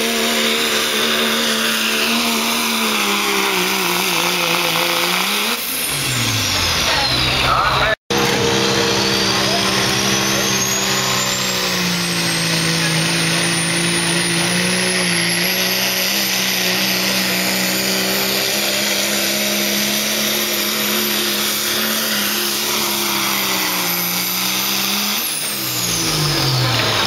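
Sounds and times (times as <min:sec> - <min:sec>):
diesel truck engine under load: 0:00.0 - 0:27.0
turbo whistle: 0:05.9 - 0:15.9.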